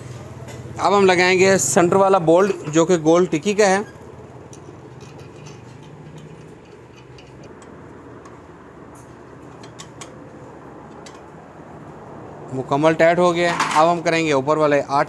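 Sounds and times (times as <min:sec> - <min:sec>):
socket wrench metallic ticks: 0:04.5 - 0:08.4.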